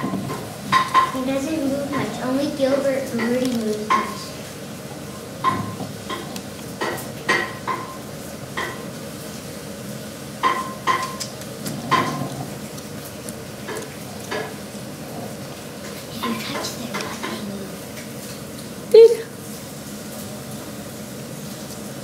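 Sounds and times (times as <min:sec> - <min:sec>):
kitchenware clinking: 0:00.0 - 0:01.2, 0:03.1 - 0:04.4, 0:05.0 - 0:08.0, 0:10.4 - 0:12.6.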